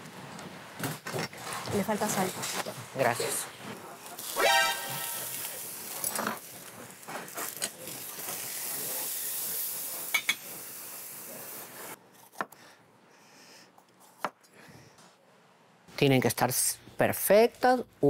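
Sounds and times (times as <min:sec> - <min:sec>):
pot hissing on stove: 0:04.2 - 0:12.0.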